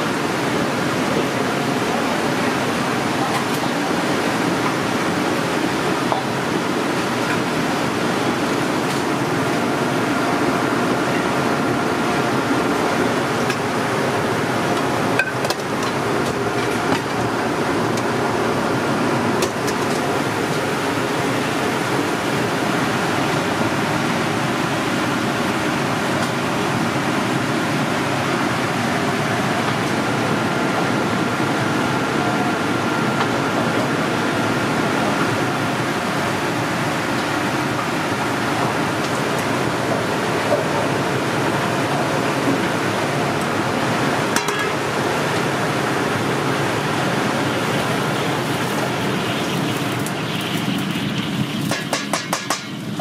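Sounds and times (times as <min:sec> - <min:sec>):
ventilation fan rushing hum: 0:00.0 - 0:53.0.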